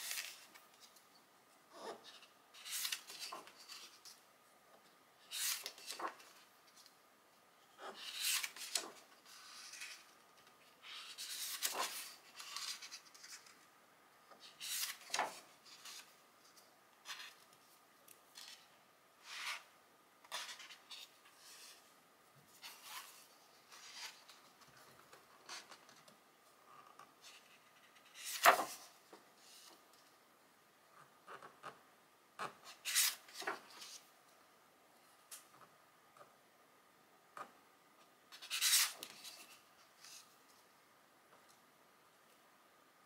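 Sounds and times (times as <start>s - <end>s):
book pages turning: 0.0s - 1.0s, 1.8s - 4.2s, 5.2s - 6.9s, 7.9s - 13.7s, 14.4s - 16.1s, 32.7s - 34.0s, 38.3s - 40.2s.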